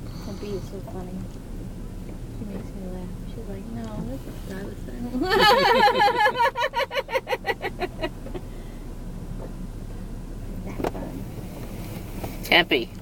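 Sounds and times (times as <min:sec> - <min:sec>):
car engine hum inside cabin: 0:00.0 - 0:13.0
road noise: 0:00.0 - 0:13.0
person laughing: 0:05.2 - 0:08.4.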